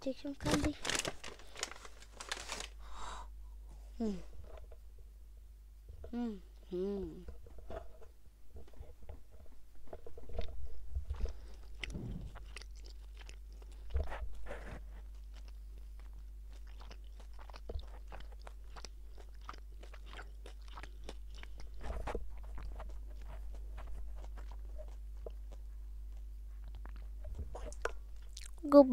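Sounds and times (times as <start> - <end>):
candy crunching: 0.4 - 3.0, 10.2 - 14.0, 15.0 - 25.6
low hum: 1.2 - 18.6.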